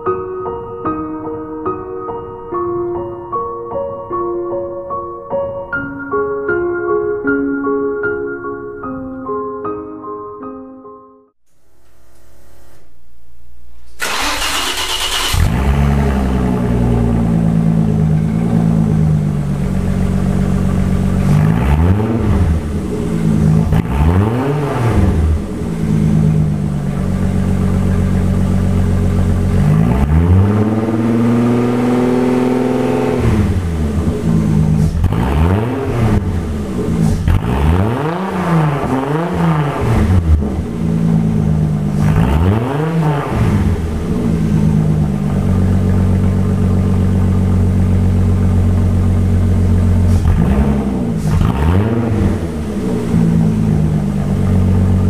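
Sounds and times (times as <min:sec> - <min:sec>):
car engine revving and idling: 0:13.8 - 0:55.0.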